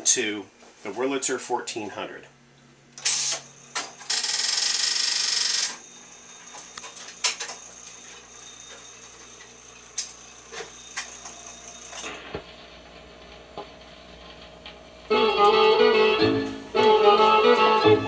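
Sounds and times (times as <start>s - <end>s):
jukebox mechanism rasping whirr: 3.0s - 12.3s.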